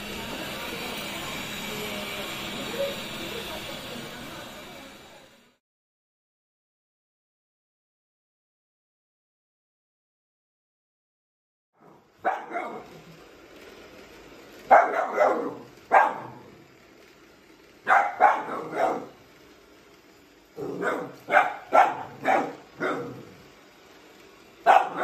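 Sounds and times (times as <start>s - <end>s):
puppy barking: 11.8s - 12.9s, 14.7s - 16.5s, 17.9s - 19.2s, 20.6s - 23.3s, 24.6s - 25.0s.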